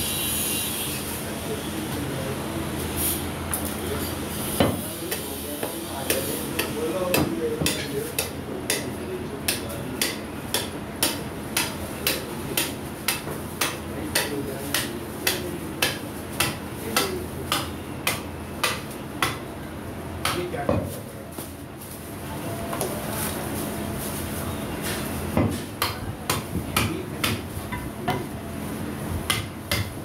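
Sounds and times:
cleaver chopping meat: 4.6 - 19.5, 20.2 - 21.0, 25.3 - 28.3, 29.2 - 30.0.

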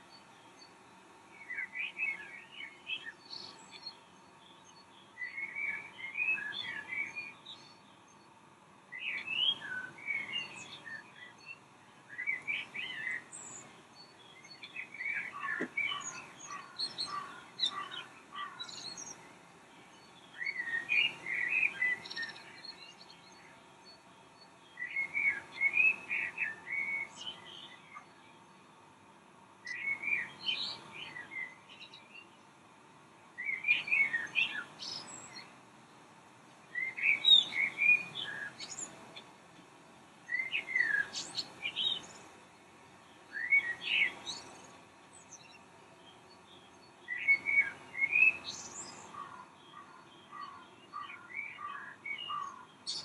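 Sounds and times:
bird chirping and warbling: 9.0 - 19.2, 40.3 - 42.2, 43.2 - 45.6, 46.4 - 53.0.

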